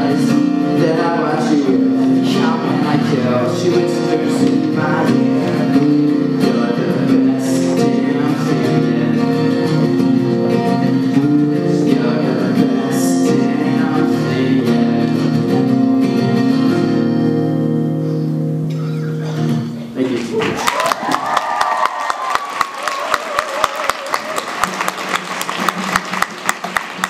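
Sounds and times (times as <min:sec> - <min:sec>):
man singing: 0:00.0 - 0:16.9
acoustic guitars strumming: 0:00.0 - 0:20.2, 0:24.2 - 0:27.0.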